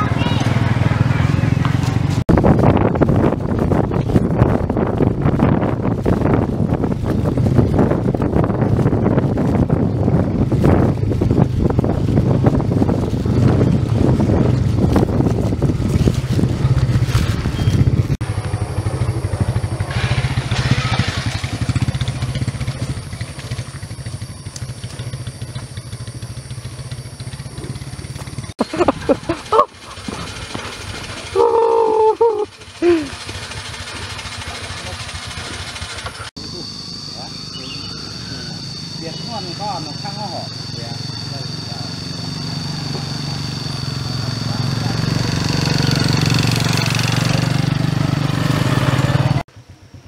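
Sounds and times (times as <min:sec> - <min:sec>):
wind buffeting microphone: 0:00.0 - 0:34.4
motorcycle engine running: 0:00.0 - 0:50.0
short loud pitched calls: 0:36.4 - 0:45.0.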